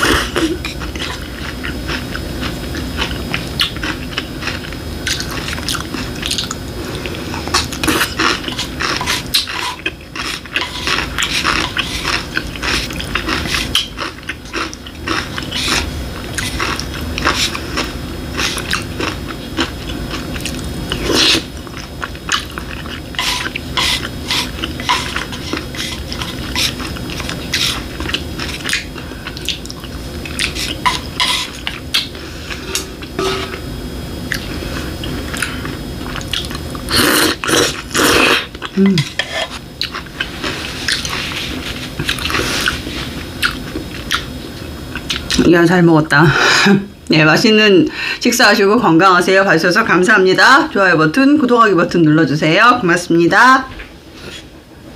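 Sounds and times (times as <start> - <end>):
chewing and wet mouth clicks: 36.1 - 36.8.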